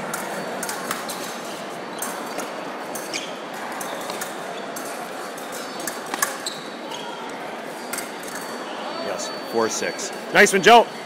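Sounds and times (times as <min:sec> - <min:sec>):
fencing blades clashing: 0:00.0 - 0:07.1, 0:07.8 - 0:08.6
murmur of crowd in hall: 0:00.0 - 0:11.0.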